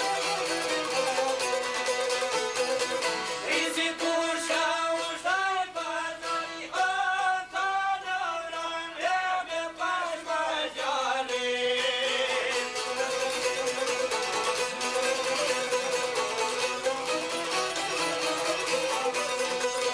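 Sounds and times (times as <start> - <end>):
bowed violin: 0.0 - 3.4, 12.9 - 19.9
plucked lutes: 0.0 - 5.4, 11.2 - 19.9
man singing: 3.4 - 14.1, 18.4 - 19.9.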